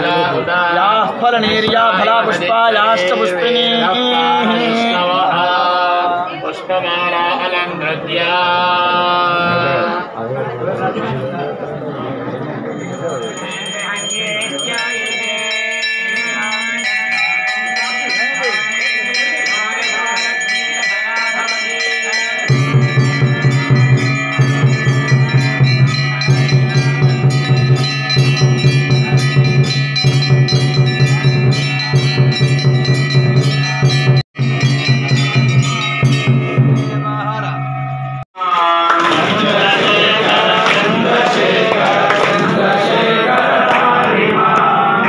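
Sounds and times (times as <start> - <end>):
temple bells ringing: 12.5 - 42.3.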